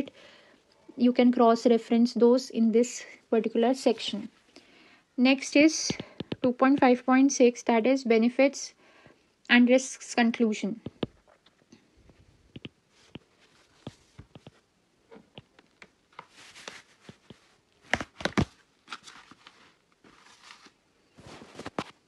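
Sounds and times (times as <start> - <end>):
stylus tapping and scratching: 5.8 - 7.1, 10.8 - 18.5.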